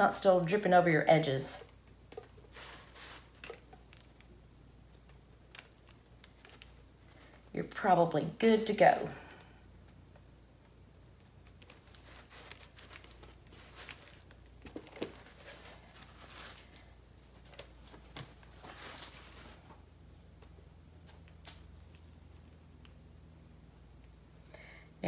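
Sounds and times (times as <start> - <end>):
paper and plastic gloves crinkling: 1.7 - 8.2, 11.2 - 23.0.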